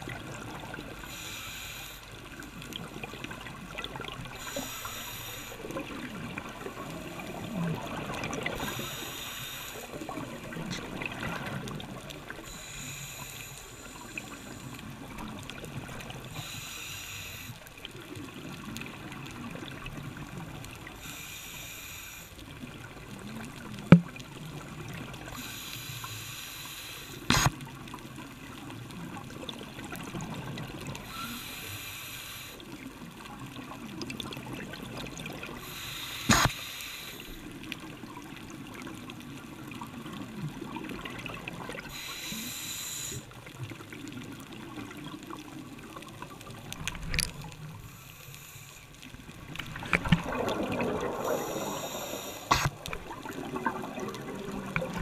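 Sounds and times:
bubbling hiss of exhaled air: 0.3s - 17.7s, 20.9s - 22.6s, 24.6s - 27.5s, 31.0s - 32.9s, 34.6s - 37.6s, 41.1s - 43.3s, 46.6s - 55.0s
diver breathing through regulator: 1.0s - 2.2s, 4.3s - 5.8s, 8.4s - 10.2s, 12.4s - 15.0s, 16.3s - 17.7s, 21.0s - 22.4s, 25.3s - 27.5s, 31.0s - 32.7s, 35.4s - 37.6s, 41.8s - 43.3s, 47.8s - 49.0s, 49.9s - 53.1s
low gurgling underwater: 5.6s - 9.0s, 9.9s - 12.4s, 49.1s - 55.0s.

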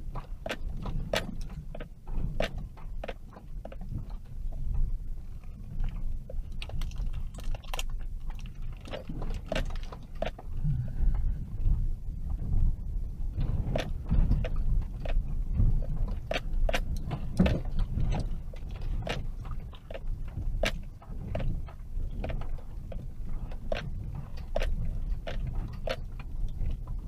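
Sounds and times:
car knocks and rattles: 0.0s - 27.0s
car road rumble: 0.0s - 27.0s.

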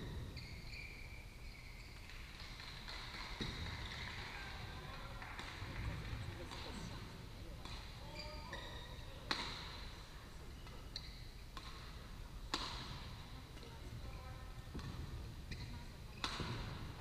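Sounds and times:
shoes squeaking on court: 0.0s - 4.0s, 7.6s - 12.0s, 12.6s - 17.0s
rackets smacking shuttlecocks: 1.5s - 4.1s, 4.9s - 10.0s, 10.6s - 13.9s, 14.7s - 17.0s.

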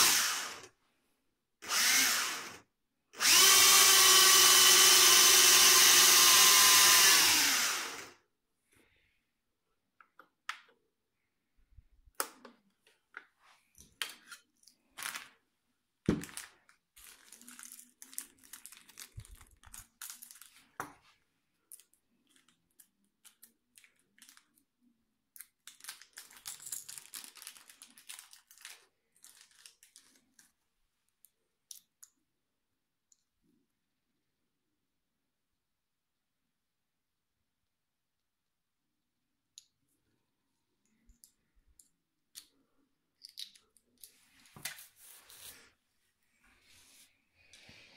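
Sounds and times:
plastic packaging crinkling: 14.8s - 15.4s, 16.1s - 20.9s, 21.7s - 24.6s, 25.5s - 30.6s
plastic parts clicking and tapping: 21.7s - 24.6s, 43.2s - 44.8s.

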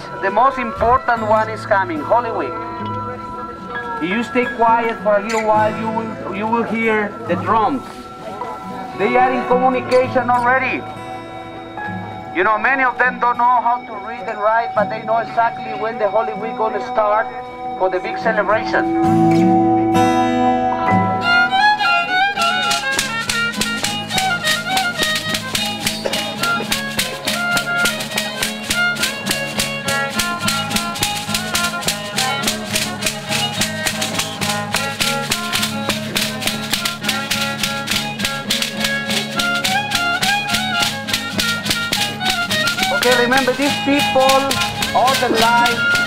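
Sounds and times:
acoustic guitar: 0.0s - 46.0s
violin melody: 0.0s - 46.0s
ankle rattles shaking: 22.4s - 46.0s.

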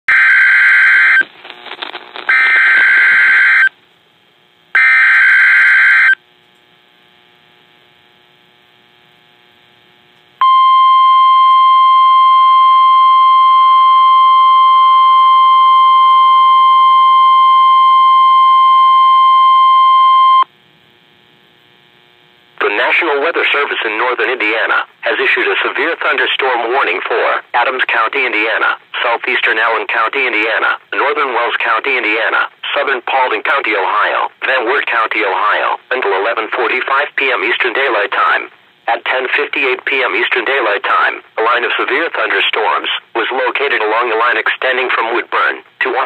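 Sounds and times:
screeching digital data bursts: 2.3s - 3.7s, 4.8s - 6.2s
steady attention tone: 4.8s - 6.2s, 10.4s - 20.5s.

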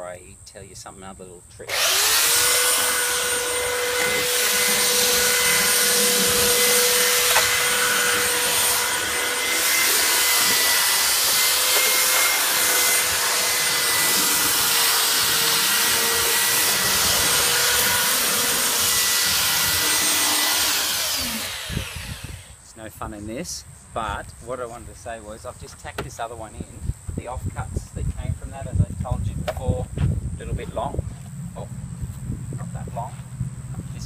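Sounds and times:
belt sander on wood: 1.7s - 22.6s.

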